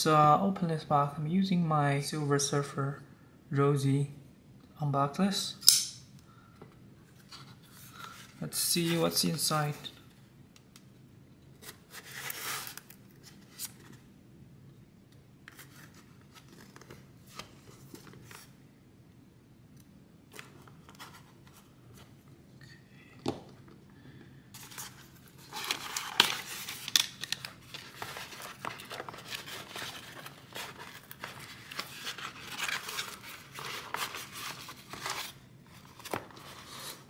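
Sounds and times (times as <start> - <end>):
cardboard crinkling and tearing: 11.6 - 13.9, 24.6 - 37.0.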